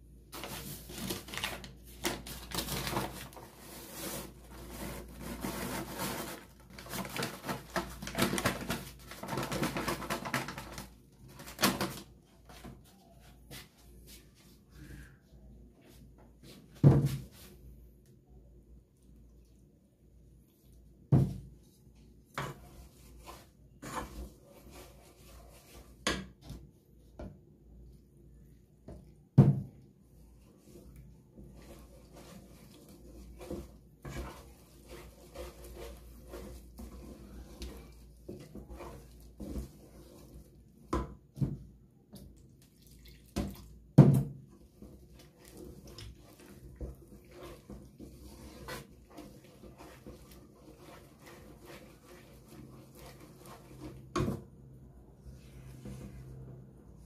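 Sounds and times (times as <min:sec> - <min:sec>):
wooden spoon knocking and scraping pot: 0:22.3 - 0:27.4, 0:30.4 - 0:42.3, 0:43.3 - 0:57.0.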